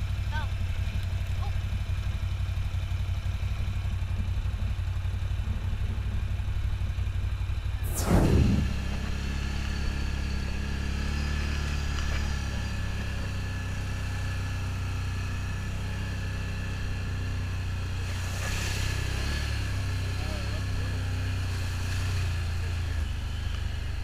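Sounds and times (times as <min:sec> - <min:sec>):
atv engine running: 0:00.0 - 0:24.0
rush of noise: 0:07.8 - 0:10.1.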